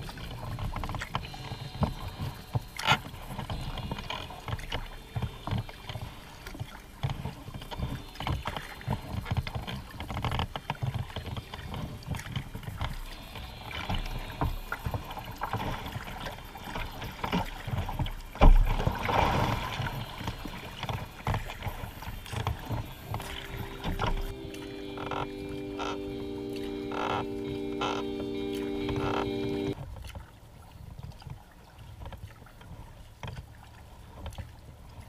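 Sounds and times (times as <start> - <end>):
water splashing against kayak hull: 0.0 - 35.0
heavy thump and splash: 13.7 - 24.3.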